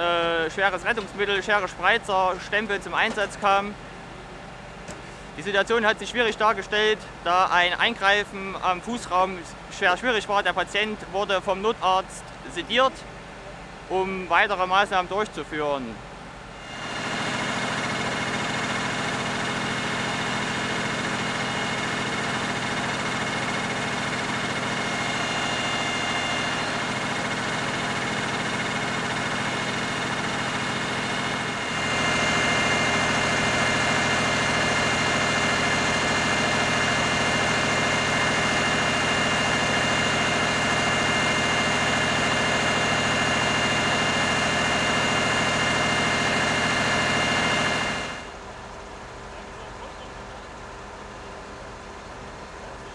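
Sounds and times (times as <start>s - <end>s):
engines idling drone: 0.0s - 52.9s
steady whining tones: 16.2s - 48.6s.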